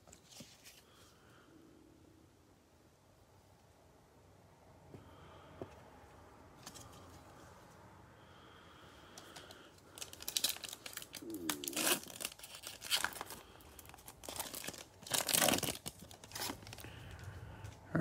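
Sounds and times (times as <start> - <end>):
foil card pack crinkling and tearing: 9.3 - 17.2.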